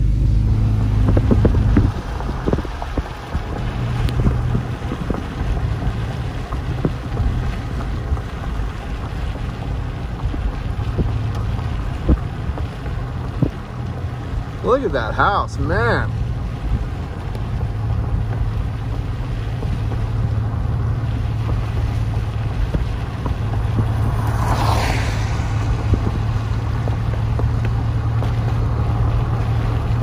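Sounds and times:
car engine hum: 0:00.0 - 0:30.0
tyres hissing on wet pavement: 0:00.0 - 0:30.0
wind noise on microphone: 0:00.0 - 0:30.0.

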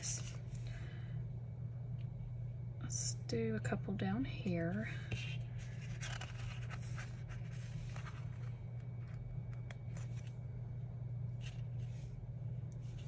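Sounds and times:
steady low hum: 0:00.0 - 0:13.0
paper rustling: 0:05.6 - 0:10.4.

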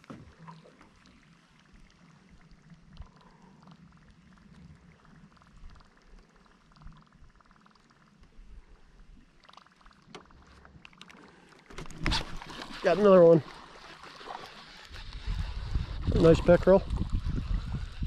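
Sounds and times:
fishing reel ticking whirr: 0:01.2 - 0:18.0
low wind rumble: 0:15.0 - 0:18.0.

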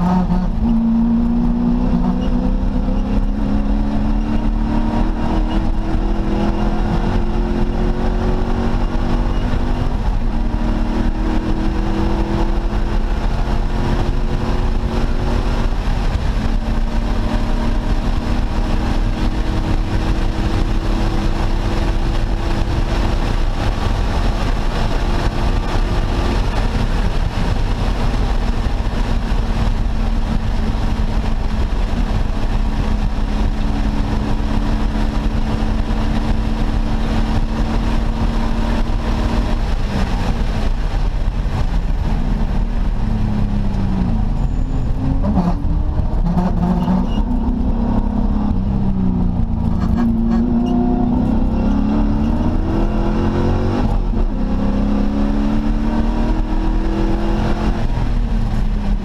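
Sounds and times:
race car engine at high revs: 0:00.0 - 0:59.0
road and wind noise: 0:00.0 - 0:59.0.

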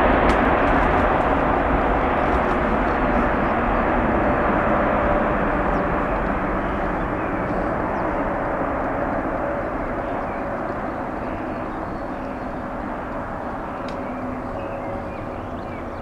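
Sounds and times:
faint jet whine: 0:00.0 - 0:16.0
jet engine roar: 0:00.0 - 0:16.0.

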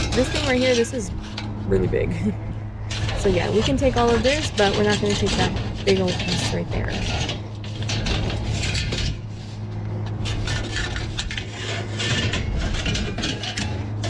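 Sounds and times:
steady low hum: 0:00.0 - 0:14.0
sheet metal scraping and clanking: 0:02.8 - 0:14.0.

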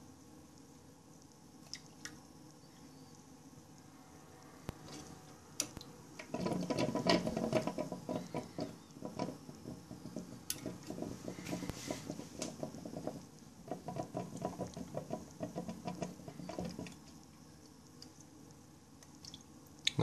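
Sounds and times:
water trickling into cistern: 0:04.6 - 0:19.9.

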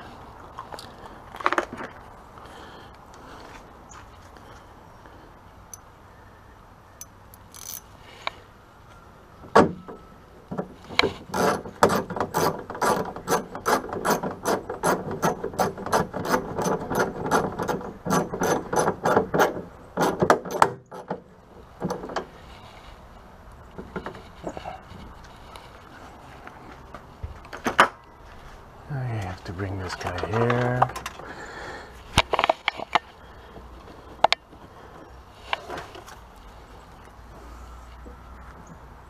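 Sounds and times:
hand ratchet clicking: 0:07.4 - 0:07.8.

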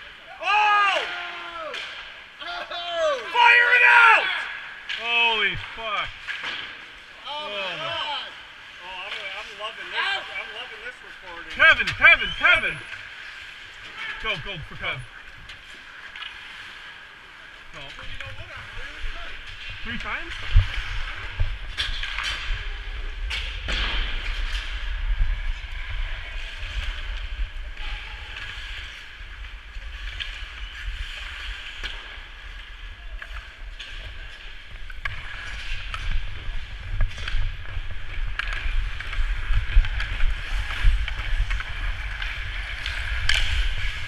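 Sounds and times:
skate blades scraping ice: 0:09.0 - 0:44.0
wind rumble on microphone: 0:34.2 - 0:44.0.

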